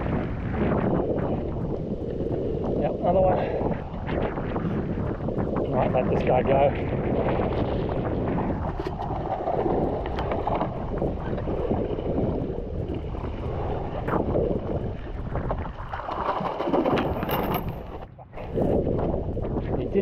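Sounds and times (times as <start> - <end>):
water sloshing against hull: 0.0 - 20.0
wind buffeting microphone: 0.0 - 20.0.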